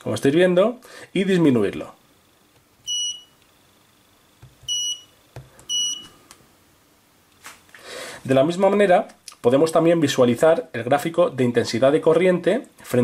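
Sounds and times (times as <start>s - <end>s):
high electronic key beeps: 2.8s - 3.4s, 4.6s - 6.1s.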